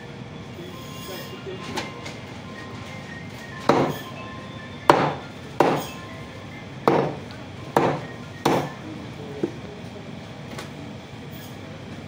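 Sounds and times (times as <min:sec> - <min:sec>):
cleaver chopping on wooden block: 0:03.7 - 0:03.9, 0:04.9 - 0:05.9, 0:06.9 - 0:07.2, 0:07.8 - 0:08.7.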